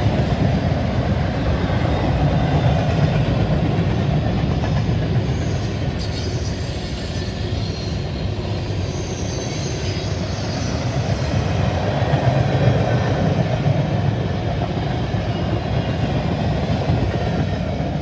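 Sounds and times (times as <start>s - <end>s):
train wheels rumbling on rails: 0.0s - 18.0s
high wheel squeals: 5.2s - 12.0s.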